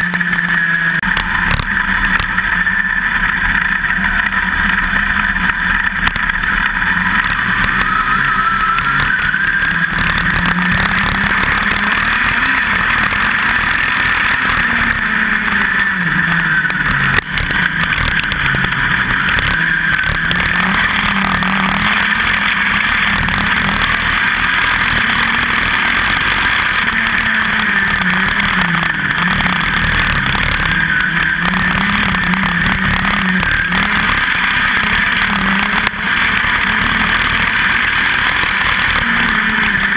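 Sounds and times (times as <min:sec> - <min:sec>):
race car engine at racing speed: 0:00.0 - 0:39.9.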